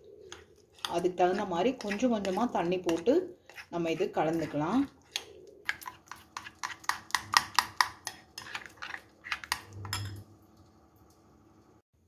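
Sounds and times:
metal spoon clinking in glass bowl: 0:09.8 - 0:10.2.

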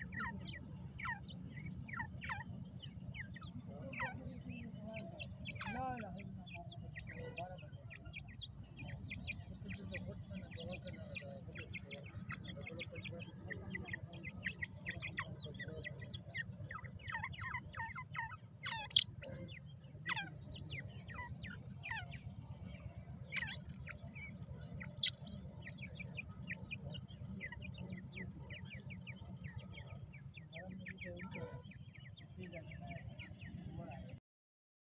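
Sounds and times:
louder bird calls: 0:00.0 - 0:19.4, 0:23.3 - 0:26.6
chicks peeping: 0:00.0 - 0:33.9
steady low hum: 0:00.0 - 0:34.2.

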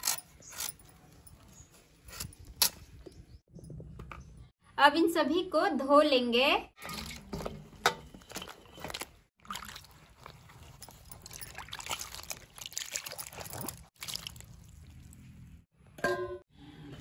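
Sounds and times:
water splashing in steel bowl: 0:08.9 - 0:15.6
water trickling: 0:09.4 - 0:15.6.

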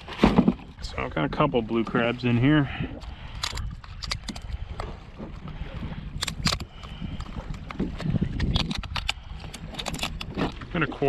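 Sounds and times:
wind rumbling on microphone: 0:00.0 - 0:11.0
sharp clicks and knocks: 0:07.5 - 0:10.6.

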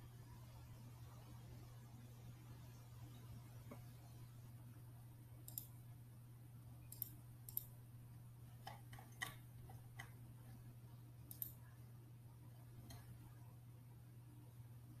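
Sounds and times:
steady low hum: 0:00.0 - 0:15.0
faint computer clicks: 0:05.4 - 0:05.8, 0:06.9 - 0:07.7, 0:11.3 - 0:11.6.

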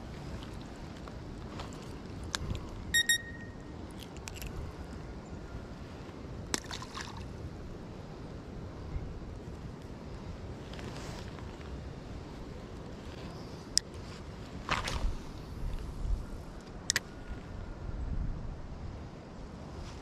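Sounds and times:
wind rumble on microphone: 0:00.0 - 0:20.0
high-pitched pips: 0:02.9 - 0:03.7.

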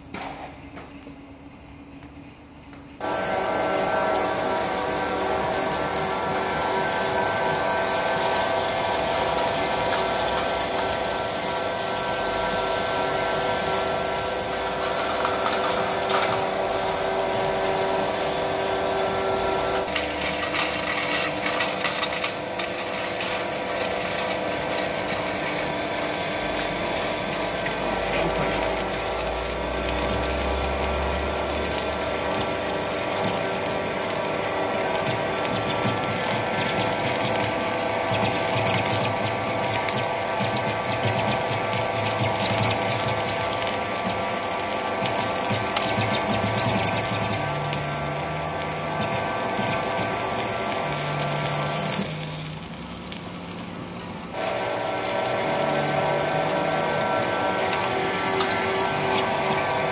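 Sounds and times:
lathe gearbox whining: 0:03.0 - 0:52.4, 0:54.3 - 0:59.9
metal chip crackling and clattering: 0:19.9 - 0:26.0.

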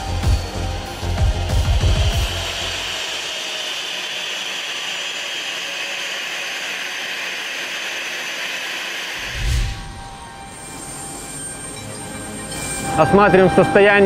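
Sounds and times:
jet engine whine: 0:00.0 - 0:14.0.

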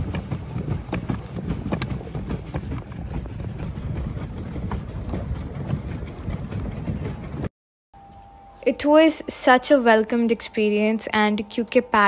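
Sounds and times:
water lapping around a boat: 0:00.0 - 0:07.5
wind rumbling on microphone: 0:00.0 - 0:07.5.

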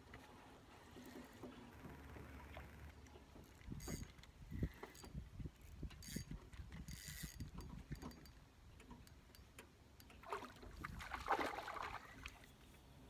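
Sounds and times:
fishing reel ticking: 0:03.7 - 0:05.2, 0:05.8 - 0:08.4.

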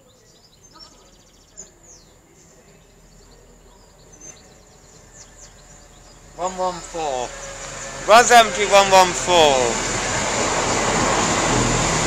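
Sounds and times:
small birds chirping: 0:00.0 - 0:08.0.

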